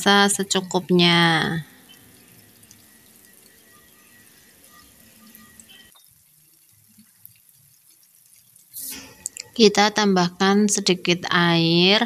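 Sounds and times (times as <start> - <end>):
cabbage sizzling in a wok: 1.3 - 9.6.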